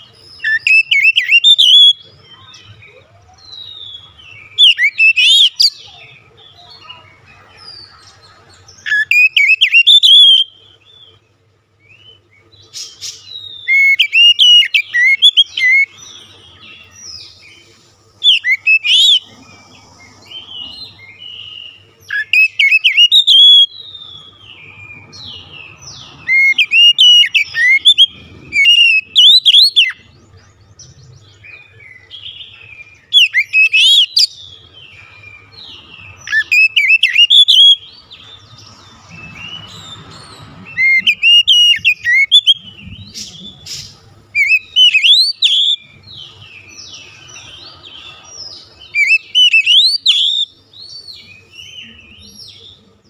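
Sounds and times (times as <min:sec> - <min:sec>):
bird singing whistled phrases: 0:00.4 - 0:02.6, 0:03.4 - 0:06.0, 0:08.8 - 0:10.6, 0:13.2 - 0:15.9, 0:18.2 - 0:19.2, 0:21.2 - 0:24.4, 0:25.9 - 0:30.0, 0:33.0 - 0:34.4, 0:36.2 - 0:38.0, 0:40.7 - 0:46.0, 0:48.9 - 0:50.5.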